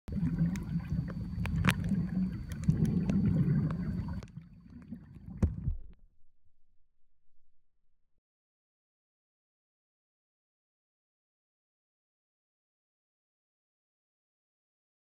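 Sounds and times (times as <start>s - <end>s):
sharp underwater clicks: 0.1s - 4.4s
muffled underwater rumble: 0.1s - 8.1s.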